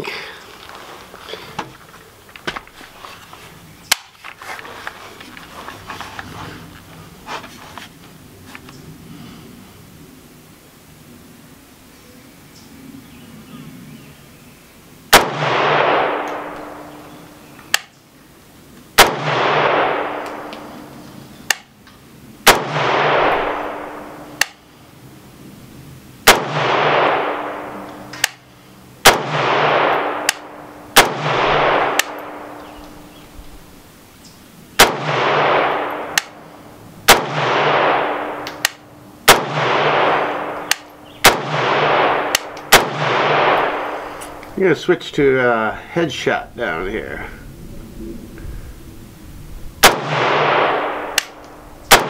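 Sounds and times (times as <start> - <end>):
faint sharp cracks: 3.9 - 6.3, 17.6 - 18.0, 21.5 - 23.3, 24.4 - 24.6, 26.3 - 28.5, 29.1 - 33.0, 34.8 - 36.4, 37.1 - 44.6, 49.8 - 52.0
rifle shots with rolling echo: 15.1 - 17.9, 19.0 - 21.8, 22.4 - 24.7, 26.2 - 33.1, 34.8 - 44.4, 49.8 - 52.0.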